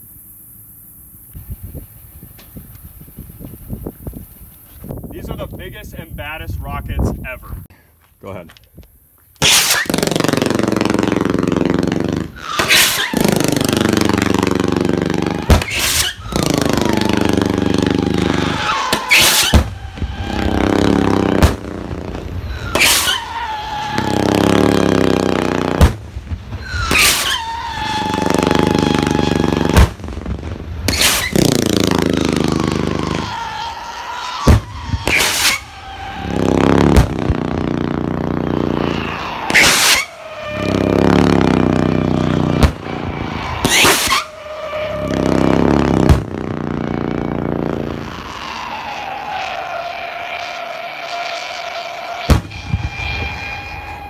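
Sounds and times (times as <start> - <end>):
rocket rushing hiss: 9.4 - 33.4, 34.3 - 48.5, 52.2 - 54.0
firework rocket crack: 9.4 - 54.0.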